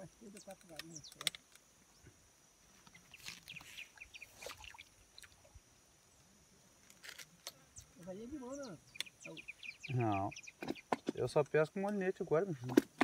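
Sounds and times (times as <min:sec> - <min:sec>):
small handling clicks: 0:00.3 - 0:01.7
splashy rustles of water and net: 0:04.2 - 0:05.5.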